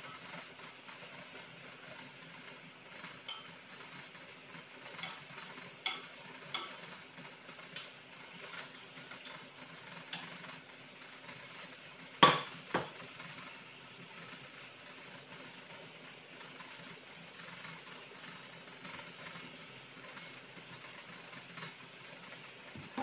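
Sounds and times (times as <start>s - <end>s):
frying pan knocking on cooktop: 12.2s - 13.0s.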